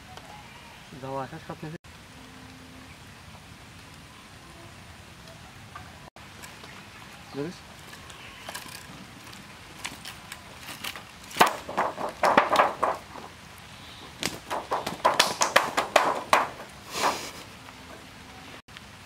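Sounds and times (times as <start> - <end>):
fish slapping on the ground: 9.8 - 13.3, 14.1 - 17.4.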